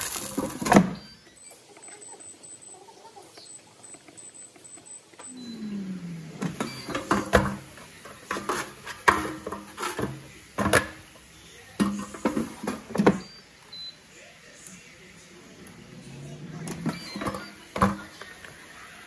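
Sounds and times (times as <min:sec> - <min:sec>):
air fryer fan hum winding down: 0:05.3 - 0:07.5, 0:14.7 - 0:19.0.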